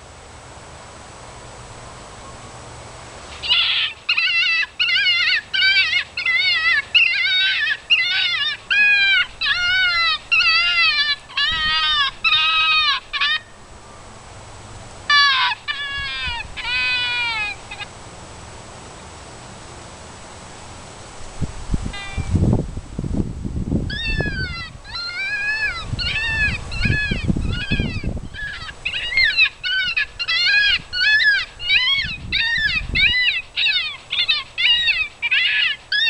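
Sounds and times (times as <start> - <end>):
electronic fox distress cries: 3.4 - 13.5, 15.1 - 17.9, 21.9 - 22.4, 23.9 - 36.0.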